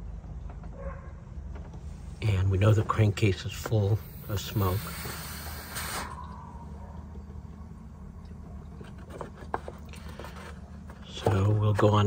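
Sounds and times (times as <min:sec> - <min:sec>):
steady low hum: 0:00.0 - 0:12.0
pressurized air hissing: 0:03.8 - 0:06.3.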